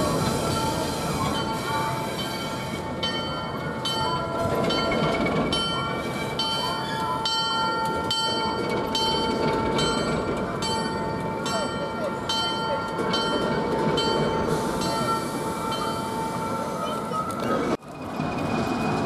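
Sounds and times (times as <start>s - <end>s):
diesel locomotive rumbling on rails: 0.0s - 19.0s
bell ringing: 3.0s - 17.2s.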